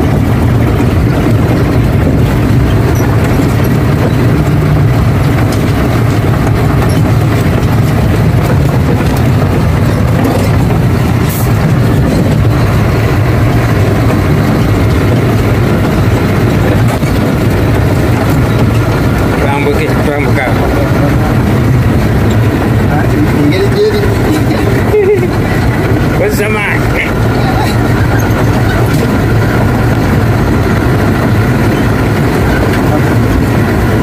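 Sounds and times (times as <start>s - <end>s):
truck diesel engine drone: 0.0s - 34.0s.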